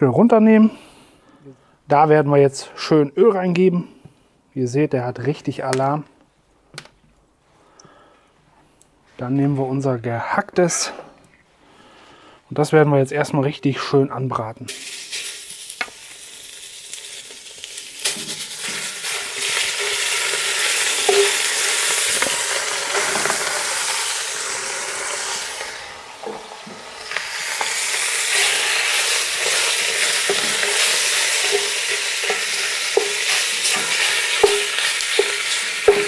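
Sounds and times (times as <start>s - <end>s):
meat sizzling in hot oil: 14.7s - 36.0s
wooden spatula scraping pot: 18.7s - 23.5s, 27.6s - 36.0s.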